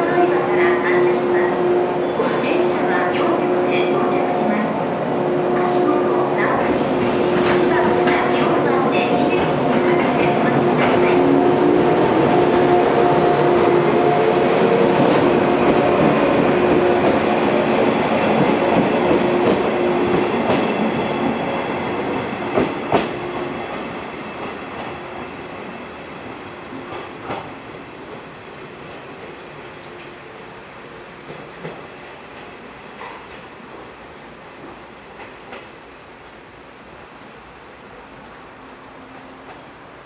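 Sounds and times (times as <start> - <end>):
train motors humming: 2.4 - 25.7.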